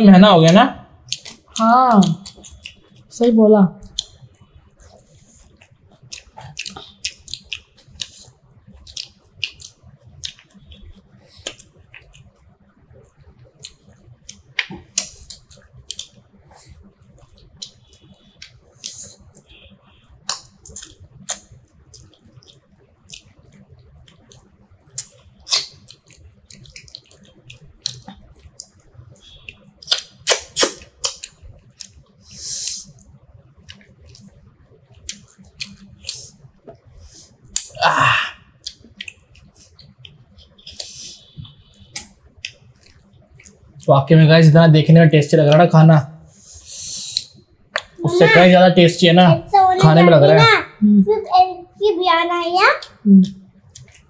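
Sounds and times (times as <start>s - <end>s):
mouths chewing wetly: 3.9s - 37.8s.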